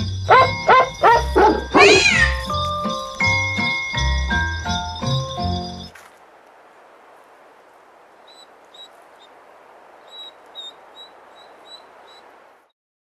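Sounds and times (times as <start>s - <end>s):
short high-pitched calls: 0.3s - 3.3s.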